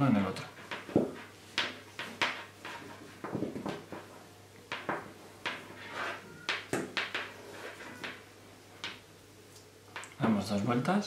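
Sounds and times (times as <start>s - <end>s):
rope rustling and scraping: 0.5s - 8.3s.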